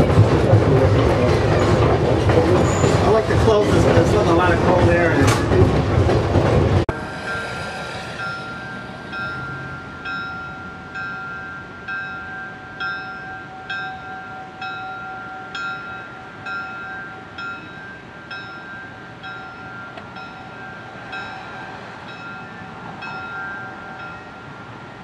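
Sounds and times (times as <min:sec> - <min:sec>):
steady high whine: 0:06.9 - 0:11.9
locomotive bell ringing: 0:06.9 - 0:25.0.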